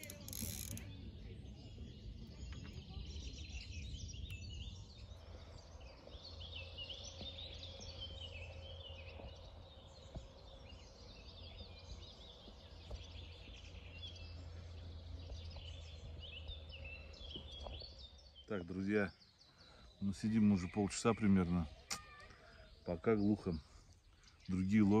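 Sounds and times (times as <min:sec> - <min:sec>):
low background rumble: 0:00.0 - 0:18.6
songbirds chirping and trilling: 0:00.0 - 0:25.0.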